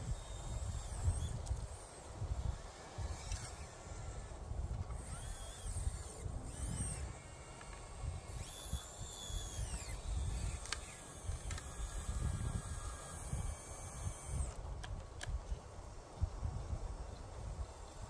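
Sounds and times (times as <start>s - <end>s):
electric motors whining: 0.0s - 15.4s
sharp clicks: 9.2s - 11.9s, 14.1s - 15.4s.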